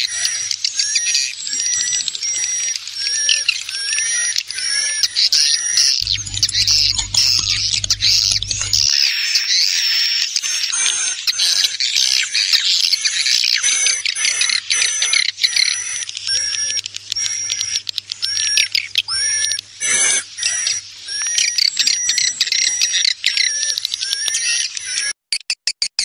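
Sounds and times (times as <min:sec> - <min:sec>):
faint steady hum: 0:06.0 - 0:09.0
swiftlets twittering and chirping: 0:06.0 - 0:09.0.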